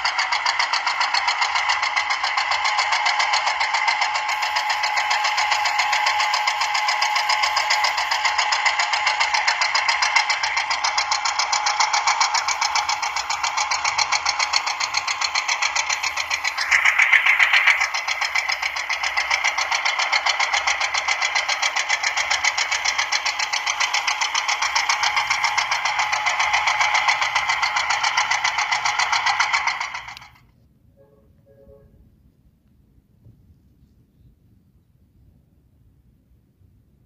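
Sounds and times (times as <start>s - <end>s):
small electric motor buzzing: 0.0s - 30.4s.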